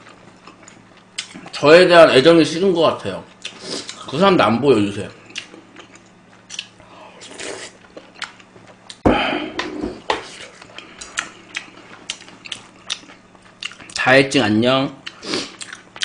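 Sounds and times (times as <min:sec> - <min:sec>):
chewing: 0:05.3 - 0:09.0, 0:10.3 - 0:14.0, 0:15.0 - 0:16.0.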